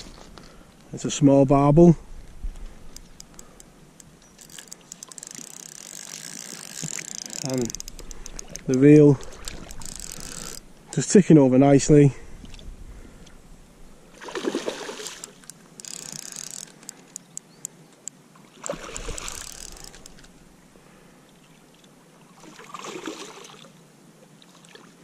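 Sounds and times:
sharp ticks: 0:02.9 - 0:08.9, 0:09.6 - 0:11.1, 0:15.1 - 0:20.2
fish splashing at water surface: 0:14.2 - 0:15.5.

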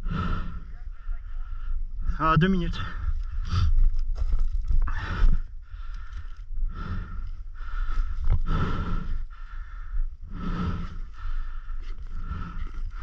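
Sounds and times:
person breathing hard: 0:00.0 - 0:02.2, 0:02.9 - 0:03.9, 0:04.8 - 0:13.0
steady low rumble: 0:00.0 - 0:13.0.

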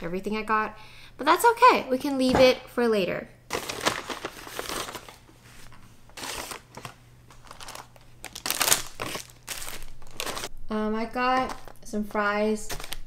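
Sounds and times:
paper bag rustling and crinkling: 0:03.5 - 0:10.5, 0:11.4 - 0:11.8, 0:12.7 - 0:13.0.

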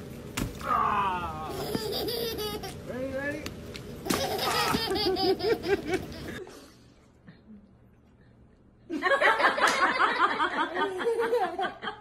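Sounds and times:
young child laughing: 0:01.4 - 0:03.0, 0:04.0 - 0:06.5
baby laughing: 0:01.5 - 0:02.9, 0:04.0 - 0:06.4.

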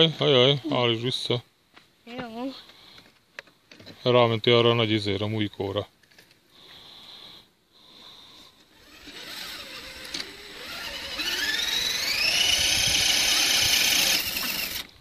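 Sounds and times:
electric motor and gears whining: 0:08.7 - 0:15.0.

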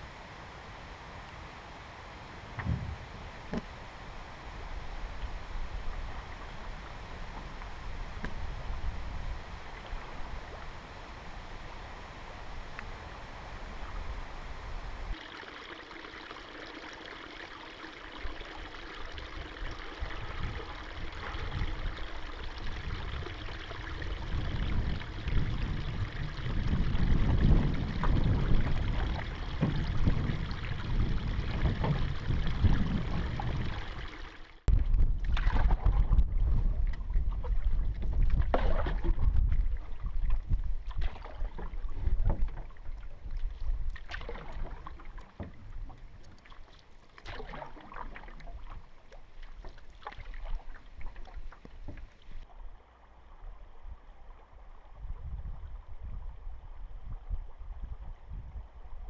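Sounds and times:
steady rush of water: 0:03.1 - 0:34.7
paddle splashing in water: 0:15.1 - 0:34.6, 0:35.2 - 0:52.6.

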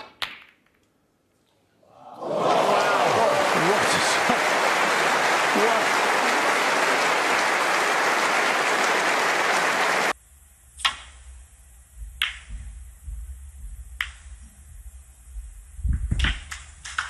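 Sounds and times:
audience applauding: 0:02.0 - 0:10.2.

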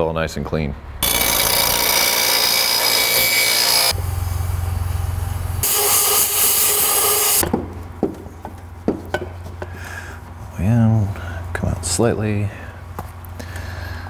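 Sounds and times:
steady low hum: 0:00.6 - 0:06.5, 0:07.4 - 0:14.0
bench grinder grinding metal: 0:01.0 - 0:04.0, 0:05.6 - 0:07.4
compressed air blow gun blasting: 0:05.6 - 0:07.5.

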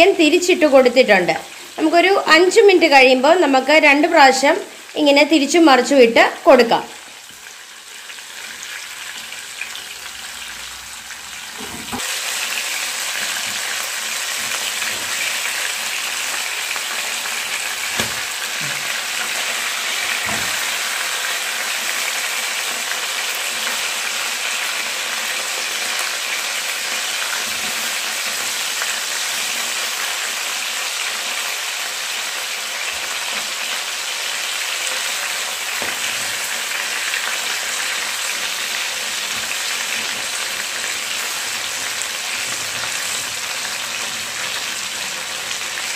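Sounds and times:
chicken frying in hot oil: 0:06.9 - 0:45.9.

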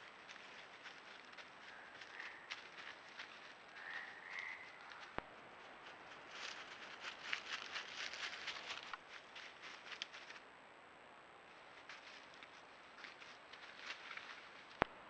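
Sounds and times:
rustling in dry leaf litter: 0:00.0 - 0:05.2, 0:05.8 - 0:10.4, 0:11.7 - 0:14.8
scattered ticks: 0:00.2 - 0:05.3.

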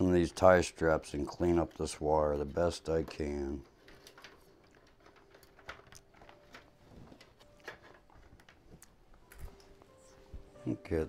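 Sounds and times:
cable ties clicking and rustling: 0:00.0 - 0:10.1.

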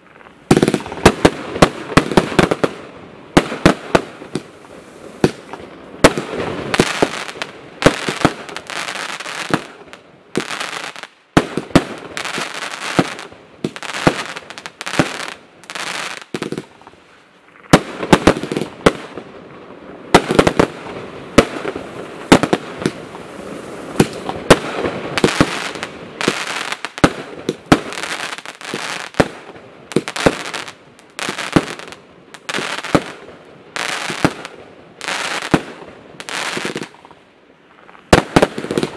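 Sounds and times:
firework bangs: 0:20.1 - 0:37.0, 0:38.1 - 0:38.9.

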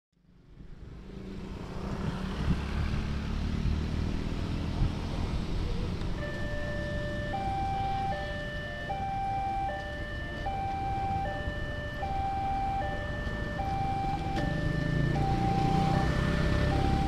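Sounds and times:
road traffic rumble: 0:00.1 - 0:17.0
motorcycles passing: 0:00.2 - 0:17.0
two-tone level crossing siren: 0:06.1 - 0:17.0.

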